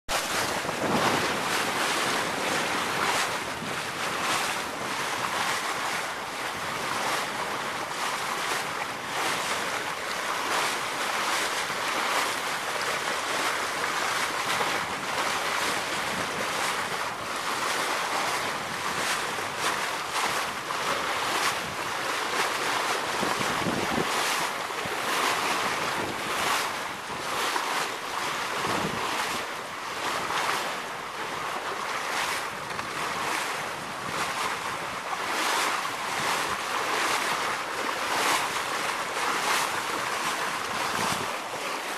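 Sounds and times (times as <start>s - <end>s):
wind buffeting microphone: 0.1s - 9.3s, 13.4s - 29.5s, 32.5s - 35.4s, 38.1s - 41.6s
water rushing past hull: 0.1s - 41.9s.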